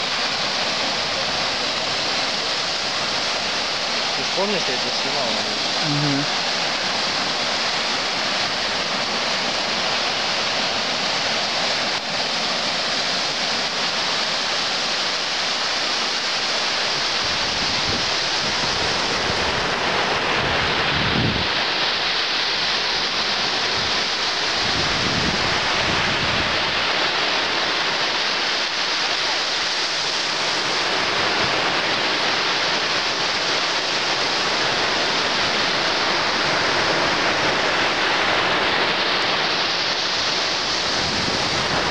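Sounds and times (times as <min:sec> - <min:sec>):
surf breaking on shore: 0:00.0 - 0:41.9
wind buffeting microphone: 0:17.2 - 0:21.7, 0:23.6 - 0:26.9, 0:35.6 - 0:41.9.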